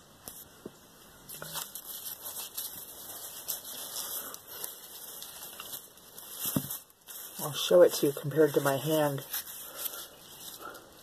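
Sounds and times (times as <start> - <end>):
things handled close to microphone: 1.3 - 7.4.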